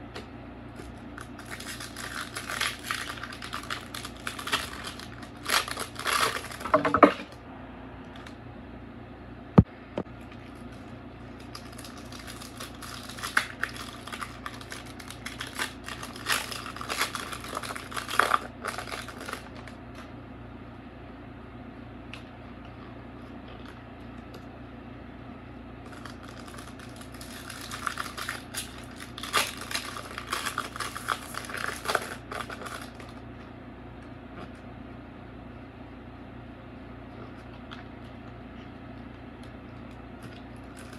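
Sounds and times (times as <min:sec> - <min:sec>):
cards and foil wrapper rustling: 0:00.8 - 0:06.8, 0:10.4 - 0:20.0, 0:25.8 - 0:33.2, 0:40.2 - 0:40.9.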